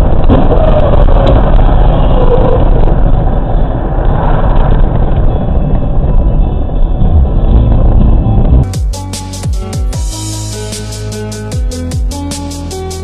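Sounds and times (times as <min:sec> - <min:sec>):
vehicle driving low rumble: 0:00.0 - 0:10.0.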